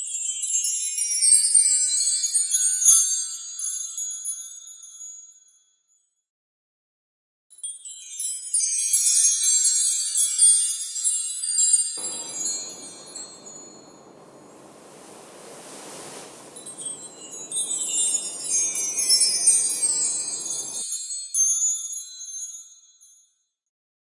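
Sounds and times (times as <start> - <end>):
low even rush: 12.0 - 20.8
high tinkling chimes: 12.0 - 21.2.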